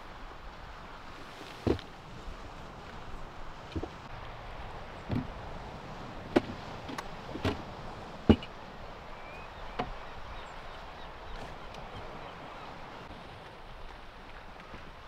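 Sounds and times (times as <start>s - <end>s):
outdoor background noise: 0.0s - 15.0s
sharp knocks and clunks: 5.1s - 5.3s, 6.3s - 7.6s, 8.3s - 8.5s.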